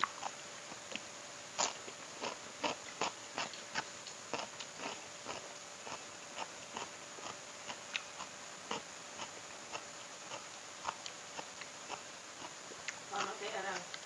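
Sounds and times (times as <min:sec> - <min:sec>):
person chewing: 0:00.0 - 0:14.0.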